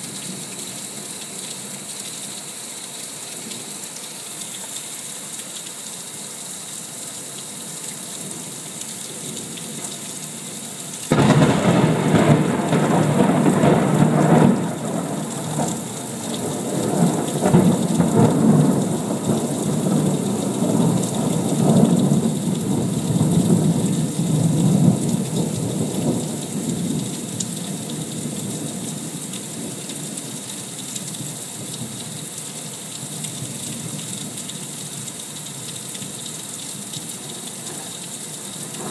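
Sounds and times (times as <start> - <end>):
heavy rain: 0.0 - 38.9
rolling thunder: 11.1 - 26.4.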